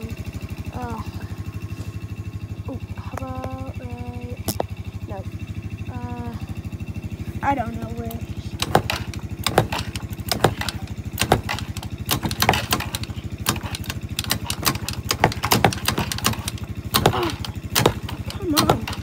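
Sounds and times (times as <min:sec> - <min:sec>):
engine idling putter: 0:00.0 - 0:19.0
sharp clicks and knocks: 0:04.4 - 0:04.8, 0:08.0 - 0:19.0.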